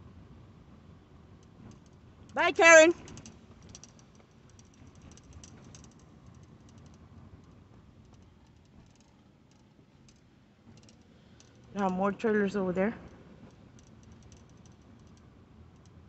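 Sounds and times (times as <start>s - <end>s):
light irregular clicks: 3.0s - 12.0s, 13.0s - 16.0s.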